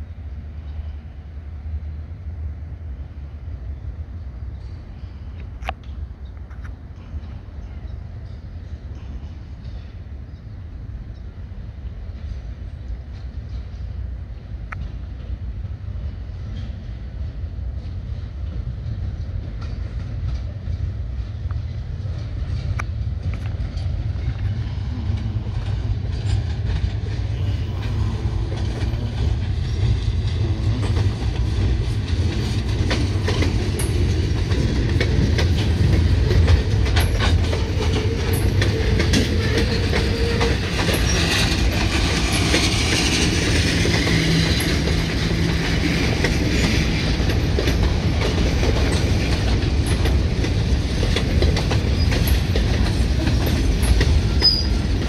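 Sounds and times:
freight train cars rumbling: 0:00.0 - 0:55.0
train wheels clicking over rail joints: 0:12.1 - 0:55.0.

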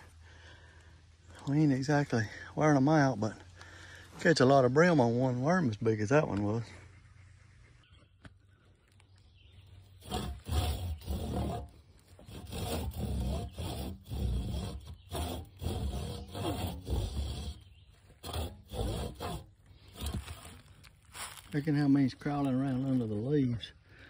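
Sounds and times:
wooden stake rasping groans: 0:09.6 - 0:24.0.

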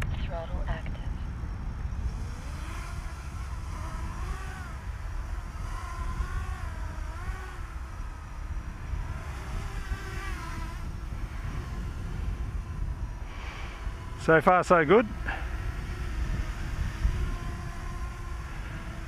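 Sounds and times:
steady low rumble: 0:00.0 - 0:19.0
quadcopter motor whine: 0:00.1 - 0:19.0.

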